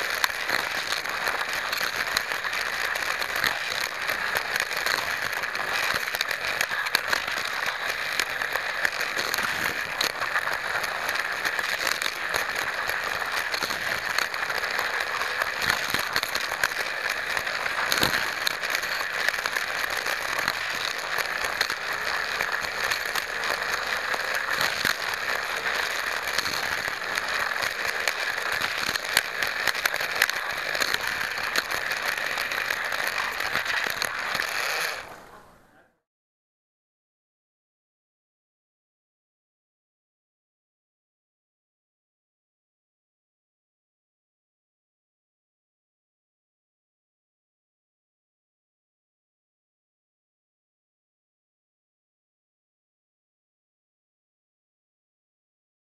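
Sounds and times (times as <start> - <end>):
electric motor high whir: 0.0 - 35.2
wheels clicking on track: 0.0 - 35.4.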